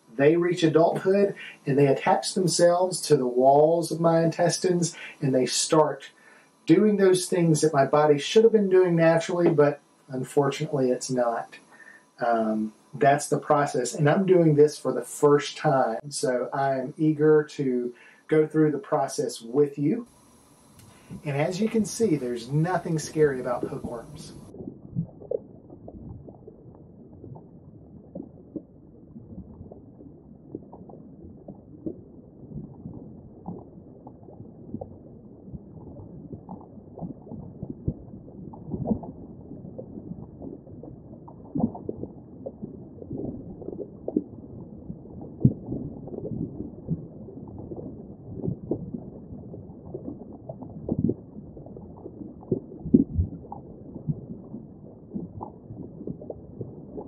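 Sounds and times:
underwater gurgling wash: 0:20.1 - 0:57.0
bubbles popping: 0:23.4 - 0:57.0.

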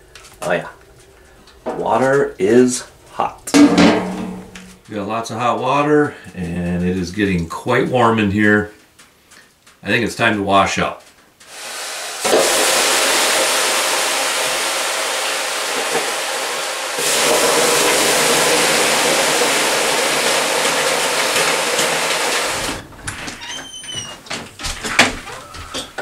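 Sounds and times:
water hissing on hot sauna rocks: 0:10.6 - 0:22.8.

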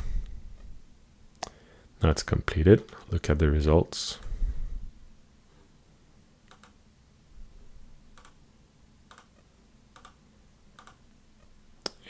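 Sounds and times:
room hum: 0:00.0 - 0:12.0
computer mouse clicks: 0:06.5 - 0:06.8, 0:08.2 - 0:08.4, 0:09.1 - 0:10.2, 0:10.8 - 0:12.0.

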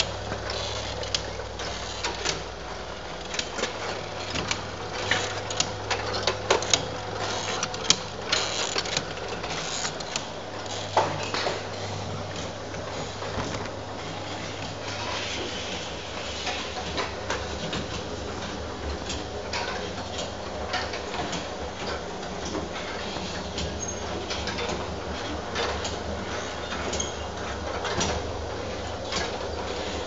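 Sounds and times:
steady low machine hum: 0:00.0 - 0:22.4.

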